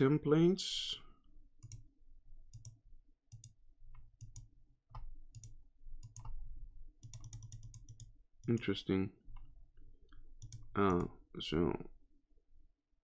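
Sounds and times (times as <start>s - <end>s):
computer mouse clicking: 1.6s - 1.8s, 2.5s - 6.4s, 7.0s - 8.7s, 10.4s - 11.1s.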